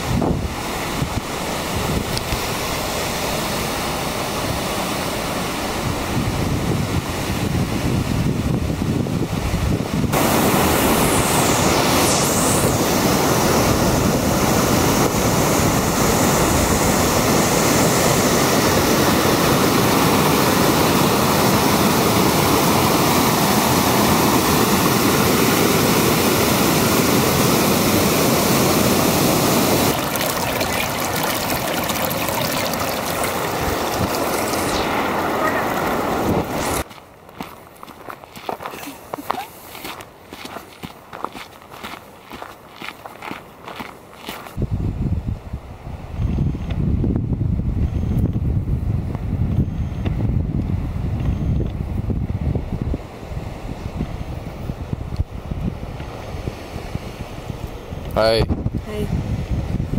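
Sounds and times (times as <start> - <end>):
wind buffeting microphone: 0.0 - 3.6, 4.2 - 25.4, 29.7 - 36.9, 44.4 - 59.9
water rushing over rocks: 14.4 - 36.8.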